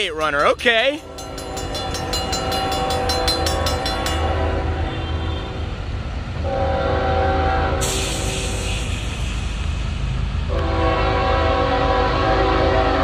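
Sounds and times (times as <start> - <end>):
crossing bell dinging: 0.0 - 5.7
diesel locomotive engine rumble: 0.0 - 13.0
train horn chord: 1.0 - 5.8, 6.4 - 8.7, 10.5 - 13.0.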